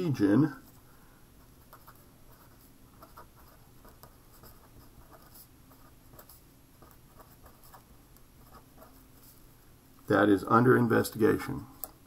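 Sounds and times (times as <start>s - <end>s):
pen scratching on paper: 1.6s - 7.8s, 8.4s - 9.4s.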